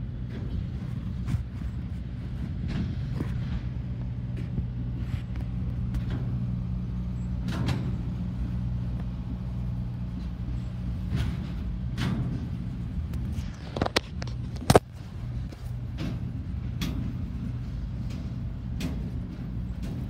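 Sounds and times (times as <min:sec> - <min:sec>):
freight train rumbling past: 0:00.0 - 0:20.0
train wheels clacking: 0:07.2 - 0:20.0.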